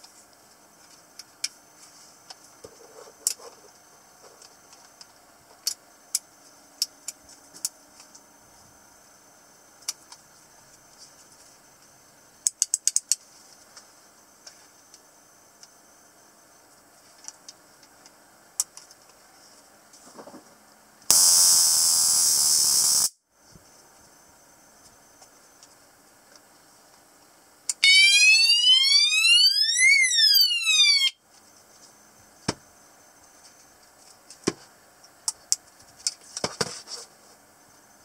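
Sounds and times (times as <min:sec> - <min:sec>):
alarm siren tone: 0:27.8 - 0:31.2.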